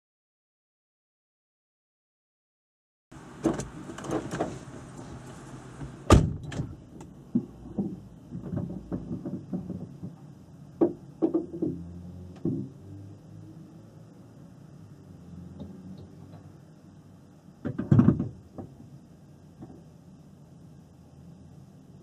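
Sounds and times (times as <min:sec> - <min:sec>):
knocks and clunks in car: 0:03.4 - 0:12.8, 0:17.6 - 0:18.8, 0:19.6 - 0:19.9
heavy thump: 0:05.8 - 0:06.8.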